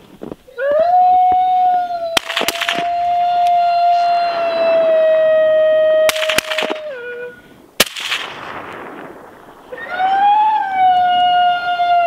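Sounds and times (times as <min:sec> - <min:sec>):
rifle shots with echo: 0:02.2 - 0:02.9, 0:06.1 - 0:06.8, 0:07.8 - 0:09.8
siren-like howl: 0:09.7 - 0:12.0.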